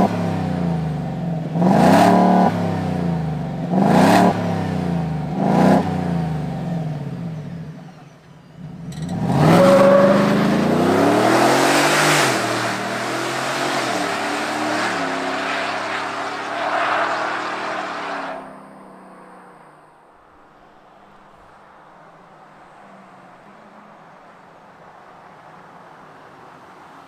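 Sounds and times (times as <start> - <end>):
truck accelerating away: 0.0 - 20.0
truck engine revving: 8.6 - 19.7.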